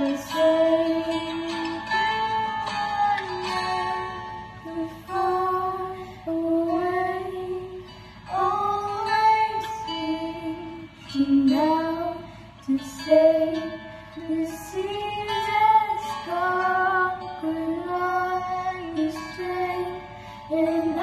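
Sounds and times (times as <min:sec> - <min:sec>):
acoustic guitar: 0:00.0 - 0:21.0.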